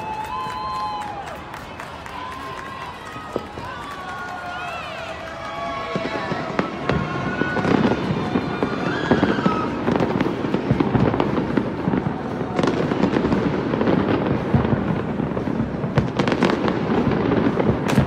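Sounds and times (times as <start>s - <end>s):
fireworks bangs and crackles: 0.0s - 18.0s
sharp firework cracks: 5.2s - 18.0s.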